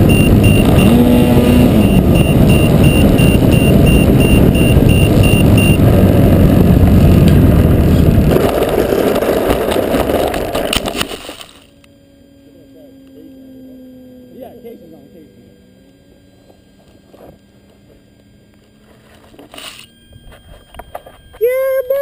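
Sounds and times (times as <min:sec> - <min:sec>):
wind buffeting microphone: 0:00.0 - 0:10.4
model plane electric motor: 0:00.0 - 0:22.0.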